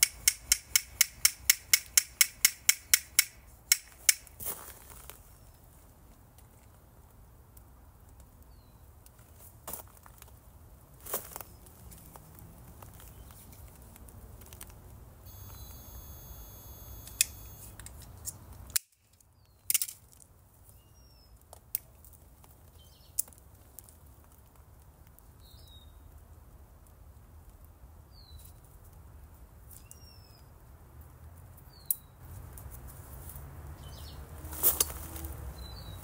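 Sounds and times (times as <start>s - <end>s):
faint bird chirps: 15.3s - 17.5s.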